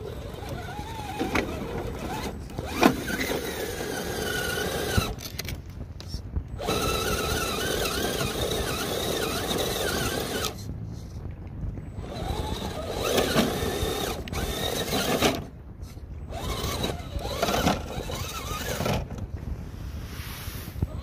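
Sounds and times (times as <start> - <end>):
electric motor whining: 0.0 - 5.3, 6.6 - 10.6, 12.0 - 15.5, 16.3 - 19.1.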